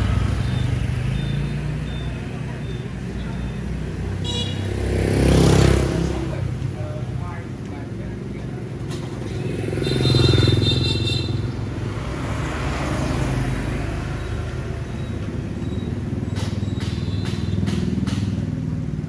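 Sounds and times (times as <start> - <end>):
scooter passing close by: 4.6 - 6.4.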